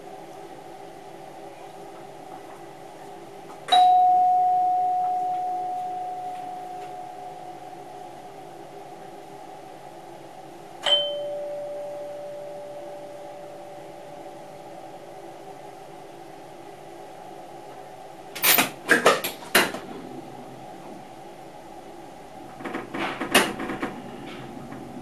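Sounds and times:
cab chime bell notes: 3.7 - 7.8, 10.8 - 14.6
train hum: 19.5 - 25.0.

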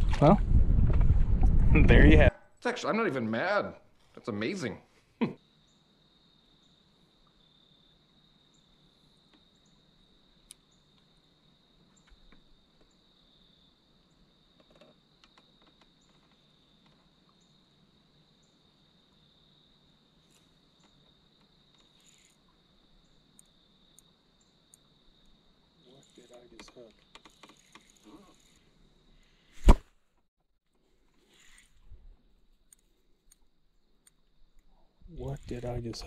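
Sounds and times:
faint ticks: 10.4 - 11.1, 14.6 - 17.6, 20.2 - 29.3.

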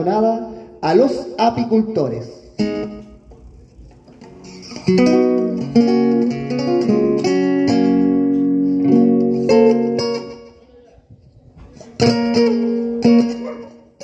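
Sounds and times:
acoustic guitars strumming chords: 2.5 - 10.7, 11.6 - 14.0.

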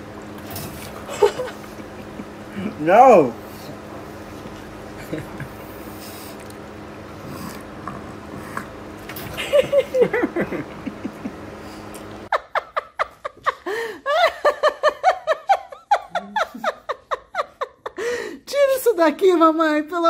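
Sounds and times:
woman laughing: 1.1 - 2.8, 5.0 - 5.7, 9.4 - 11.5, 12.3 - 18.4.

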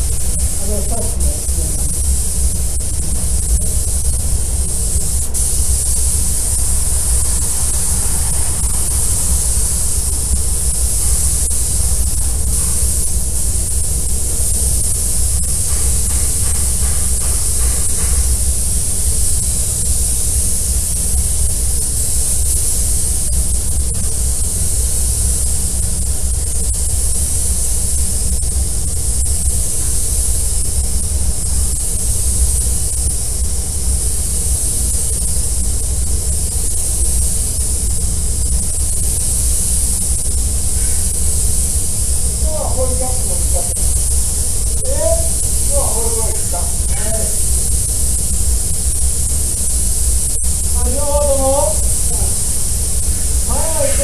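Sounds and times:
spray gun hissing: 0.0 - 54.0
low rumble: 6.3 - 11.1.

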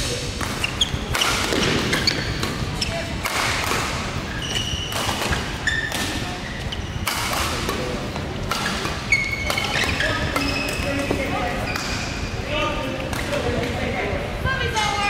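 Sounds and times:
rackets hitting shuttlecock: 0.0 - 6.3, 7.0 - 12.1
shoes squeaking on court: 0.3 - 3.2, 4.2 - 12.2.

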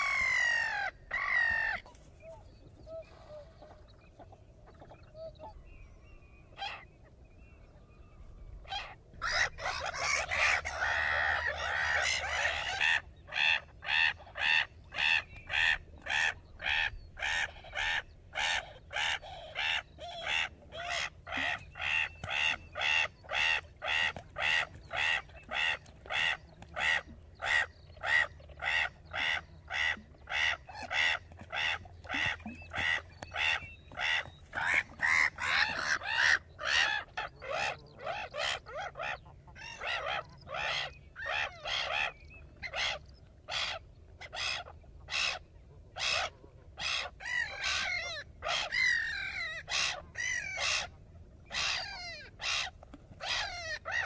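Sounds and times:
gull calling: 8.6 - 45.4, 46.0 - 50.9, 51.5 - 54.0.

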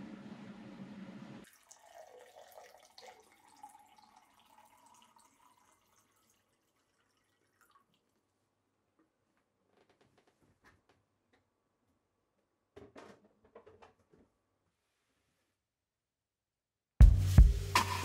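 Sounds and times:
water pouring into a glass: 1.4 - 8.3.

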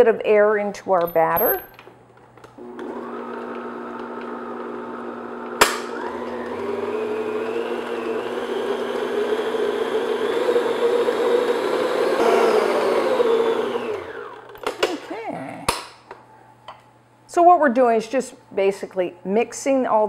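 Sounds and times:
stand mixer motor whirring: 2.6 - 14.5.

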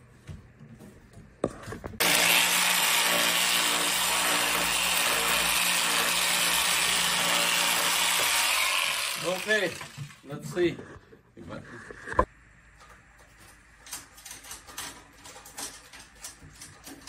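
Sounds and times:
power tool cutting wood: 2.0 - 10.2.

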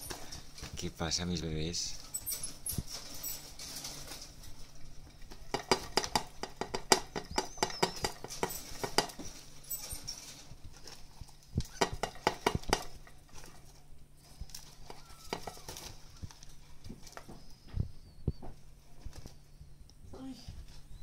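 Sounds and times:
claws clicking on wire cage: 2.0 - 17.4.

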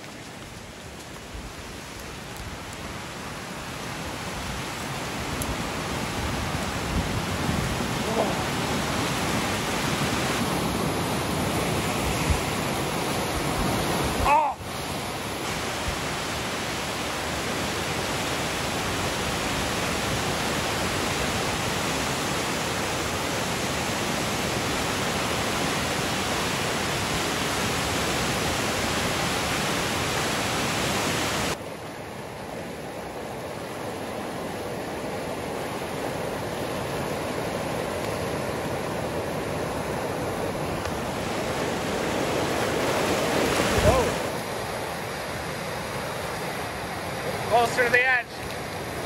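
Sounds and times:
debris flow rushing down creek: 0.0 - 49.0.

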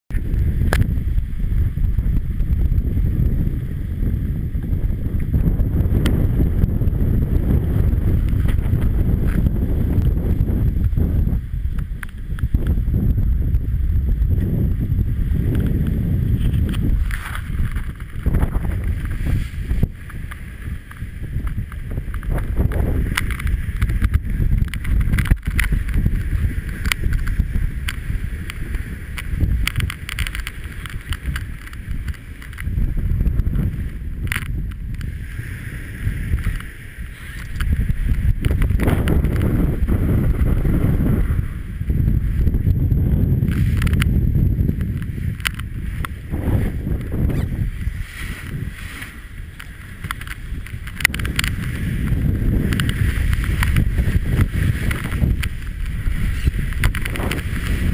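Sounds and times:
water rushing along hull: 0.1 - 57.9
wind buffeting microphone: 0.1 - 57.9
sharp ticks: 20.0 - 32.7, 49.5 - 57.9.

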